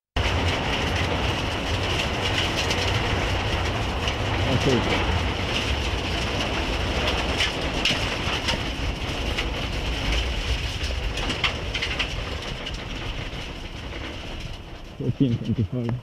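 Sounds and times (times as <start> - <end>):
car engine rumble: 0.2 - 16.0
sharp ticks and rattles: 0.2 - 16.0
tyres on gravel: 0.2 - 16.0.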